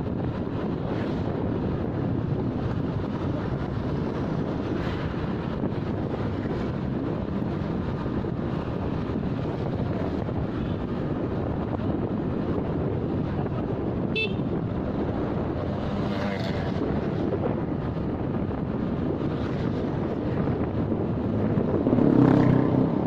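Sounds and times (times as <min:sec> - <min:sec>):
wind noise on microphone: 0:00.0 - 0:23.0
high horn beep: 0:14.2 - 0:14.5.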